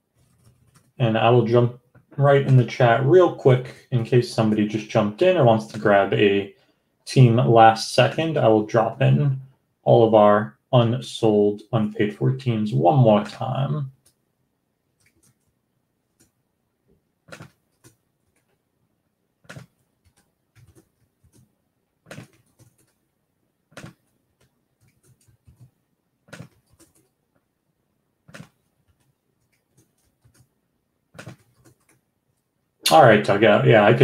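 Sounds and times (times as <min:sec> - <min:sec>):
keyboard and mouse clicks: 0:00.2 - 0:01.0, 0:15.0 - 0:16.4, 0:17.2 - 0:18.6, 0:19.4 - 0:23.0, 0:23.7 - 0:27.5, 0:28.2 - 0:30.5, 0:31.1 - 0:32.1.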